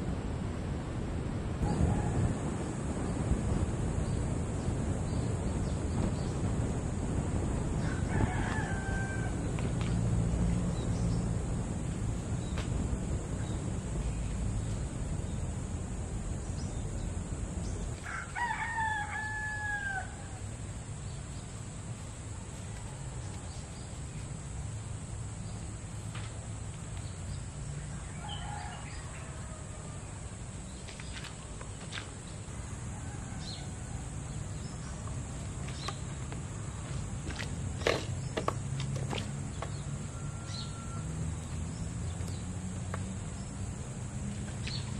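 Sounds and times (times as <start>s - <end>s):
rooster crowing: 1.6s - 2.6s, 7.7s - 9.5s, 18.0s - 20.5s, 28.0s - 30.2s, 32.8s - 34.3s, 40.0s - 41.5s.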